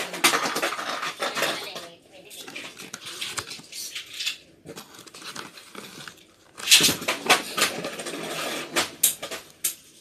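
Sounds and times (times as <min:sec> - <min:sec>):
cardboard box rustling: 0:02.4 - 0:03.8, 0:04.6 - 0:08.5.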